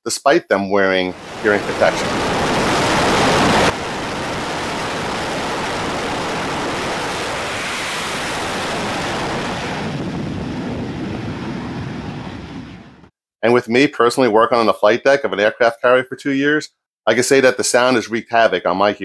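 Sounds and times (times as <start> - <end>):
jet engines roaring: 1.0 - 13.1.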